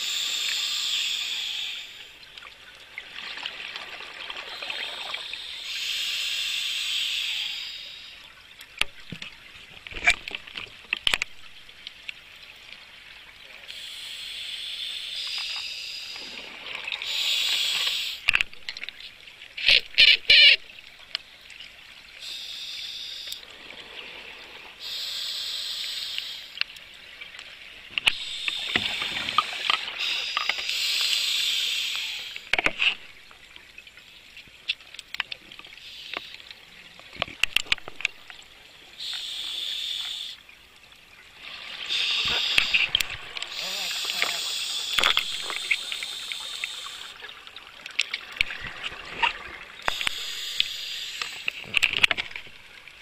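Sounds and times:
regulator inhalation hiss: 0.0s - 2.1s, 4.5s - 8.2s, 13.7s - 16.4s, 17.0s - 18.3s, 22.2s - 23.4s, 24.8s - 26.6s, 28.1s - 32.5s, 35.8s - 36.4s, 39.0s - 40.4s, 41.9s - 47.3s, 49.9s - 51.6s
crackling bubble clicks: 44.9s - 47.0s.

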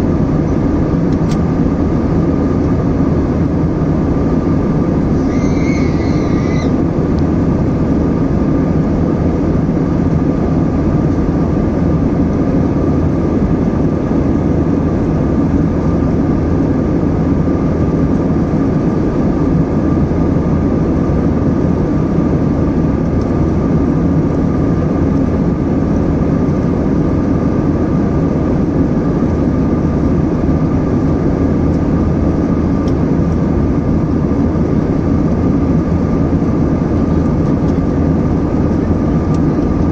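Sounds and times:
airliner cabin engine rush: 0.0s - 39.9s
short high tone: 5.2s - 6.8s.

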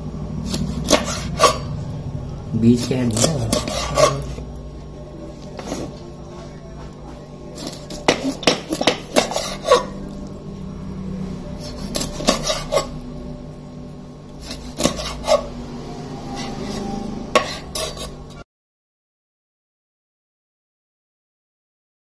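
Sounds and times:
knife sawing through flesh: 0.4s - 1.7s, 2.7s - 4.4s, 7.6s - 10.0s, 11.6s - 13.0s, 14.4s - 15.5s, 16.2s - 18.2s.

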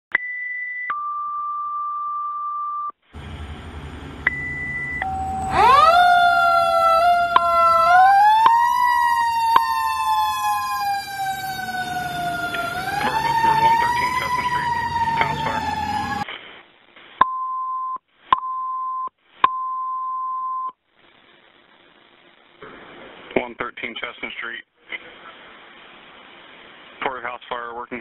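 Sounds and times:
fire engine rumble: 3.0s - 16.2s
siren wailing: 3.2s - 16.3s
alert tones: 4.2s - 7.8s.

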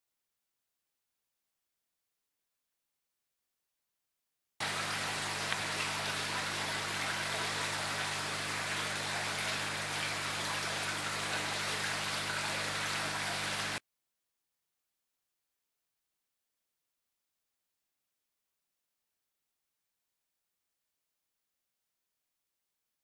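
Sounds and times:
water splashing and trickling: 4.6s - 13.8s.

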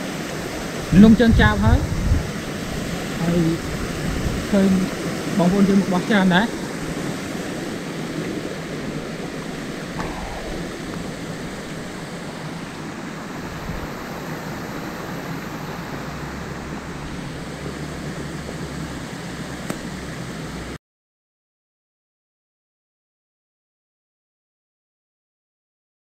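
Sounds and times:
rushing water: 0.0s - 20.8s
low rumble: 10.0s - 13.9s.

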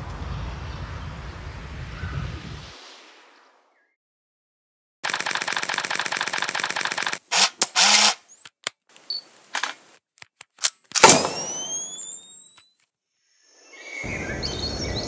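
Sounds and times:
rapid mechanical clicks: 5.0s - 8.2s
short clicks: 5.0s - 12.8s
rising whistling tone: 11.2s - 12.8s.

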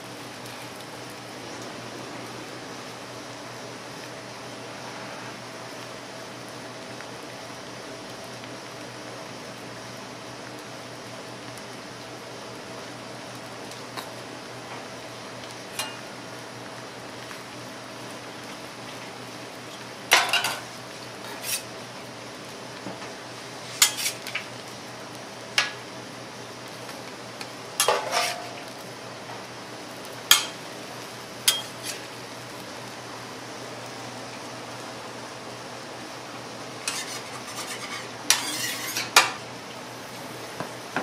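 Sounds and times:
steady background hiss: 0.0s - 41.0s
metal utensils clanking on pans: 15.8s - 16.0s, 20.1s - 21.7s, 23.8s - 24.5s, 27.8s - 28.7s, 30.3s - 30.7s, 31.4s - 32.1s, 36.8s - 39.4s.

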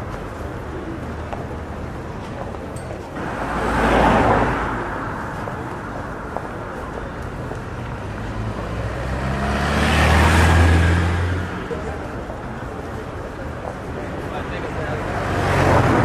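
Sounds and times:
vehicle passing: 3.2s - 7.0s, 7.7s - 12.3s.

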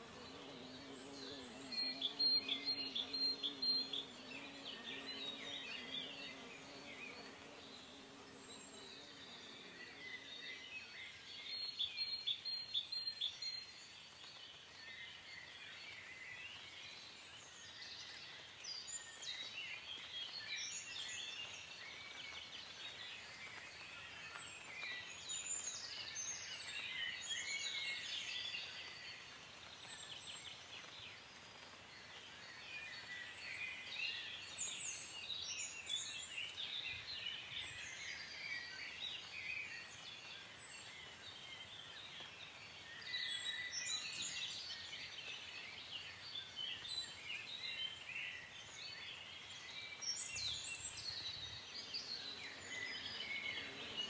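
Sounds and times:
birds chirping and singing: 0.0s - 14.4s, 32.4s - 54.0s.

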